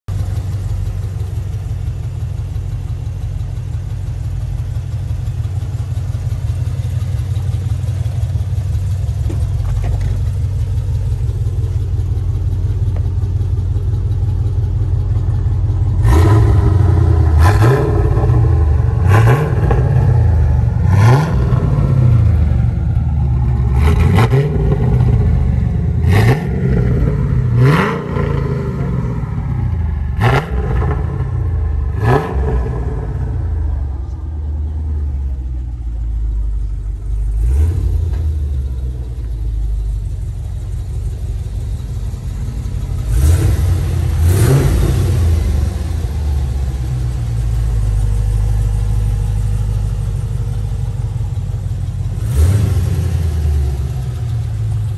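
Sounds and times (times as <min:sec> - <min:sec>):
car engine idling: 0:00.1 - 0:54.9
car engine revving: 0:00.1 - 0:54.9.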